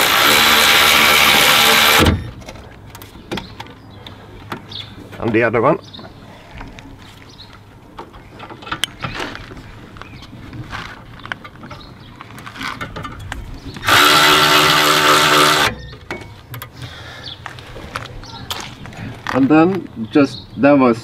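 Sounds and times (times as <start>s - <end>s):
cordless electric ratchet spinning: 0.0s - 2.0s, 13.8s - 15.7s.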